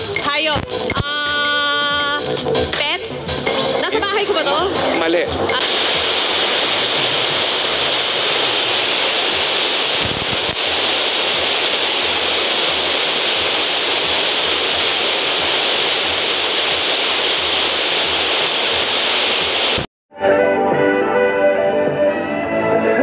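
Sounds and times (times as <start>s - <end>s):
radio static hiss: 3.7s - 19.9s
radio crackle: 5.1s - 19.9s.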